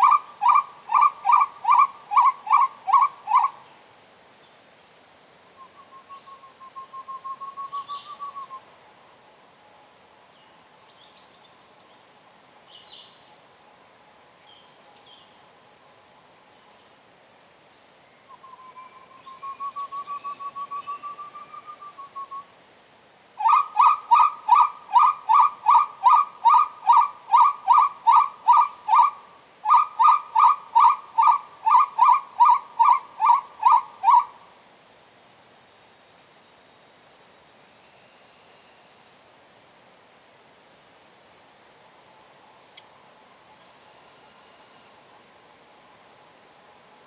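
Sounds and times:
hunting call whistled notes: 0.0 - 3.6, 5.6 - 8.7, 18.3 - 22.5, 23.4 - 34.4.

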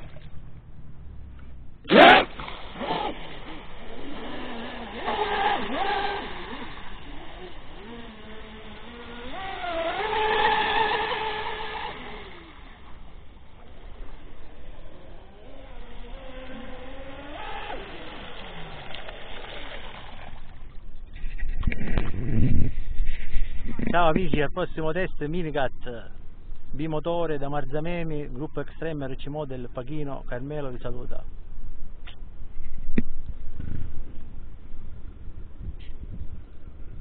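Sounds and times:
electric boat motors whining: 1.9 - 20.6.

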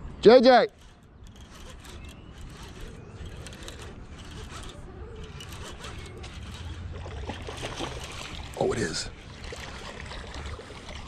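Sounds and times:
fishing reel clicking: 0.8 - 6.9.

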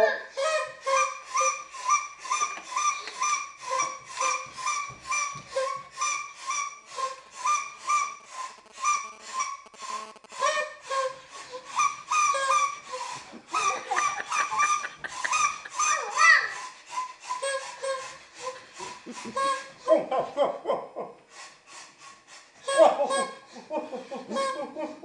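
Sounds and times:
paper party blowers tooting: 0.3 - 19.9.

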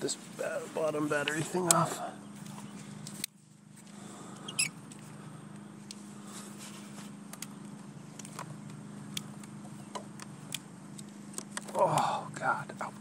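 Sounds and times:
steady low hum: 0.0 - 13.0
short high squeak: 4.5 - 4.8.

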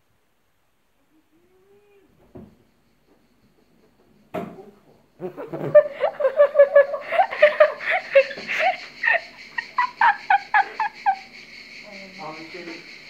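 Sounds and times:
woman laughing with high giggles: 5.2 - 11.4.

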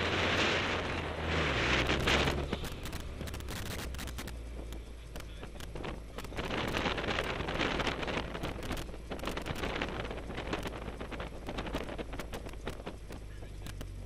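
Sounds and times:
car driving past: 0.0 - 3.9
wind buffeting microphone: 0.0 - 14.0
sharp clicks: 2.0 - 6.8, 11.8 - 14.0.

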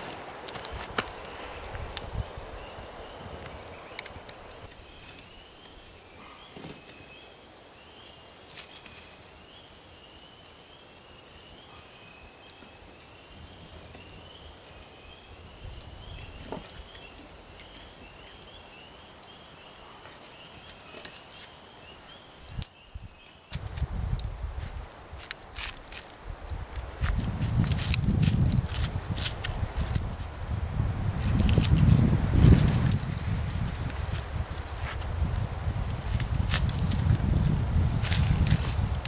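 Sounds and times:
stick scraping hot coals: 0.0 - 7.2, 8.4 - 9.3, 10.2 - 22.7, 23.5 - 39.0.

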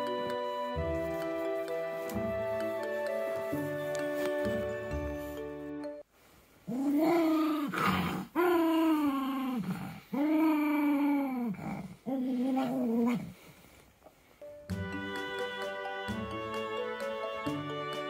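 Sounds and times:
dog growling: 6.7 - 13.4.

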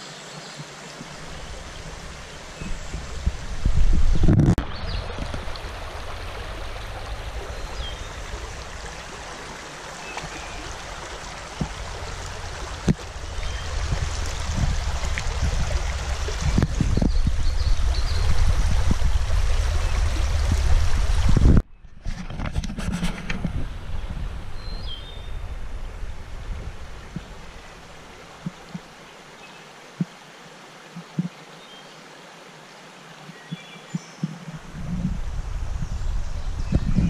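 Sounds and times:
river water rushing: 0.0 - 21.6, 22.8 - 36.7
deep rumble: 1.2 - 9.6, 10.6 - 21.7, 22.4 - 28.7, 34.6 - 37.0.

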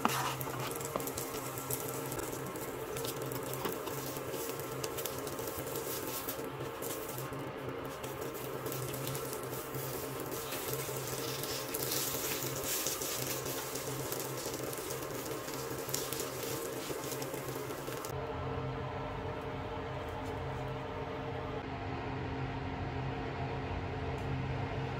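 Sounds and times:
omelette sizzling in oil: 0.0 - 18.1
spatula scraping and tapping pan: 0.0 - 18.1.

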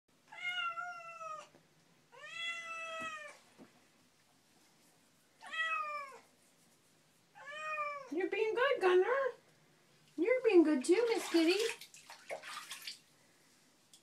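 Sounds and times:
cat meowing: 0.3 - 1.5, 2.1 - 3.4, 5.4 - 6.2, 7.4 - 8.1.

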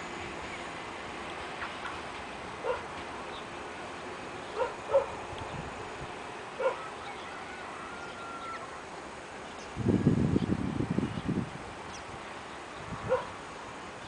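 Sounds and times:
dog-like animal calling: 6.6 - 7.2.

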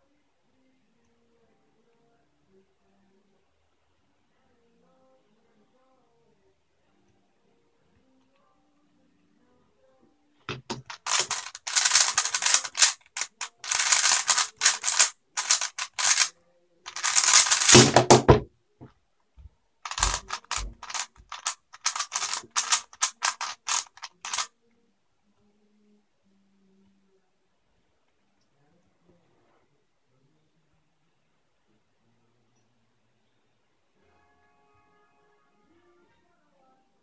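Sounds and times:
puzzle cube clicking: 10.5 - 16.3, 16.9 - 18.4, 19.9 - 24.5.

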